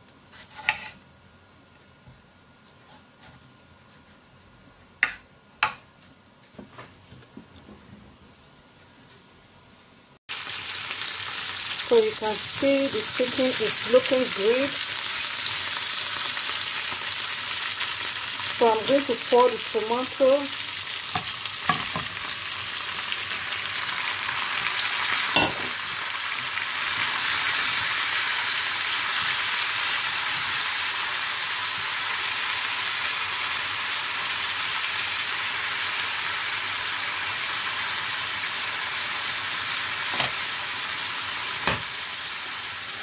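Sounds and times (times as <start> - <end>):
food sizzling in a pan: 10.3 - 43.0.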